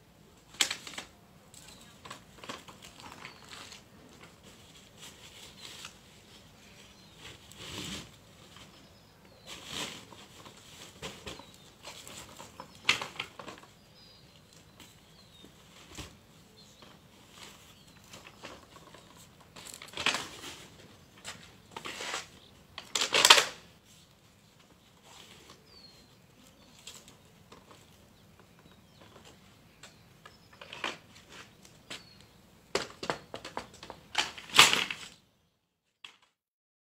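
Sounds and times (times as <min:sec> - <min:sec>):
stroller plastic and metal clicks: 0:22.8 - 0:23.6.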